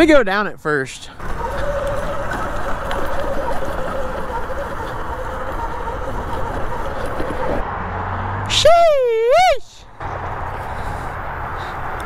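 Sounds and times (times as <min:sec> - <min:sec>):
continuous rushing noise: 0:01.2 - 0:07.6
electric motor whine: 0:01.2 - 0:07.6.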